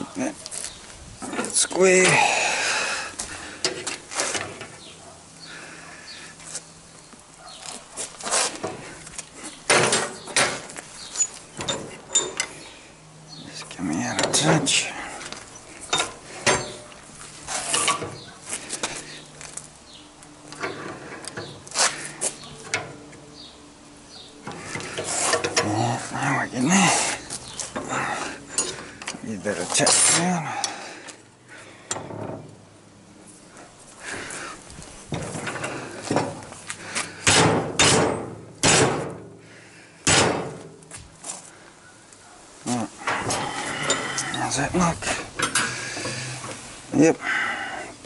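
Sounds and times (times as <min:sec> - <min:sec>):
metal clicks and clanks: 0:09.7 - 0:12.6, 0:15.9 - 0:17.0, 0:45.3 - 0:46.6.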